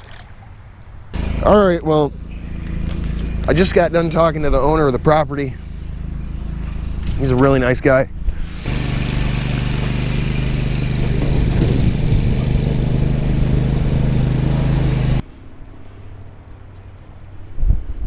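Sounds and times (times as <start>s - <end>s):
lawn mower engine drone: 1.2s - 15.2s.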